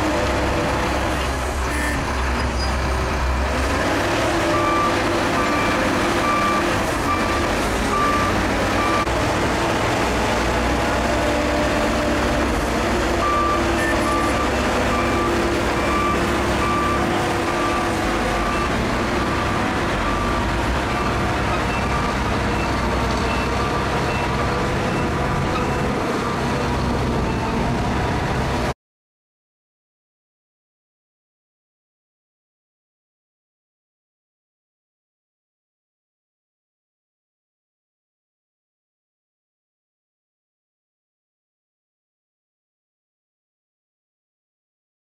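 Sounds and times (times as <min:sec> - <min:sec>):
bulldozer diesel engine: 0:00.0 - 0:28.8
reversing alarm beeping: 0:04.5 - 0:09.1, 0:13.2 - 0:25.6.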